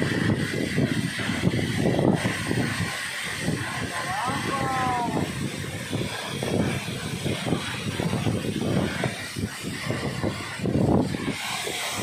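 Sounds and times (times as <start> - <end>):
waterfall roaring: 0.0 - 12.0.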